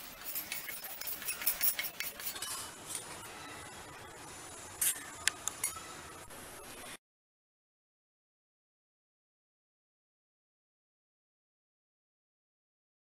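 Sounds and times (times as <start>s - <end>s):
spices rattling into steel jar: 0.0s - 2.6s
spoon clinking on steel jar: 0.0s - 2.7s
spatula scraping steel pan: 0.0s - 2.8s.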